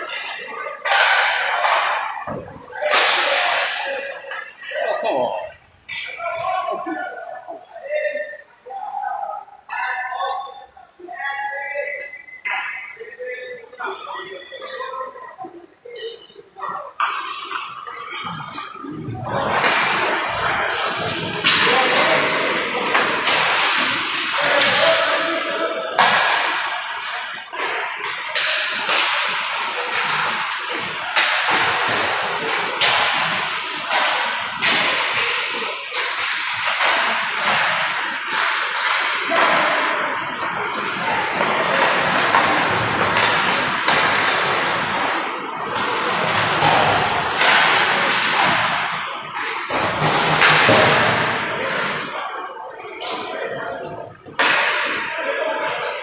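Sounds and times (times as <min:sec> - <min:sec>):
hockey sticks and pucks cracking: 0:00.0 - 0:05.0, 0:17.0 - 0:52.2, 0:54.3 - 0:55.1.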